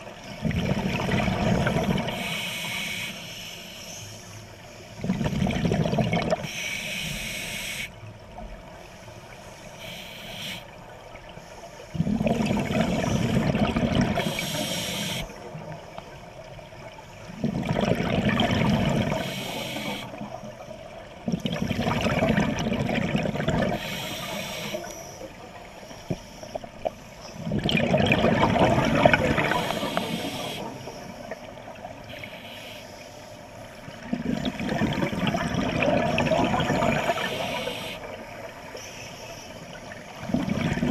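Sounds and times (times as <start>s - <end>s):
exhaled bubbles gurgling: 0.0s - 2.4s, 5.0s - 6.6s, 11.9s - 32.2s, 33.8s - 38.8s, 39.6s - 40.9s
regulator air hiss: 2.1s - 4.8s, 6.4s - 8.1s, 8.9s - 10.8s, 14.2s - 15.4s, 19.2s - 20.2s, 23.8s - 27.4s, 29.4s - 31.4s, 32.0s - 33.8s, 37.1s - 38.2s.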